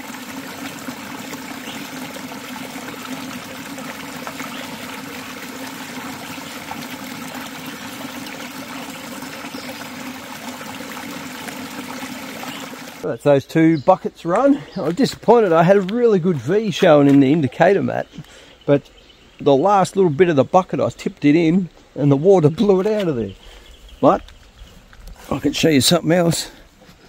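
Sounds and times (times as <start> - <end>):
water running and spilling: 0.0 - 13.1.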